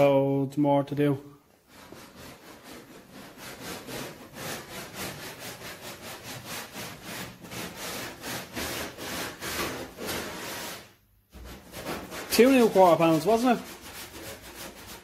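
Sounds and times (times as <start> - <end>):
sandpaper rubbing on metal: 1.7 - 15.0.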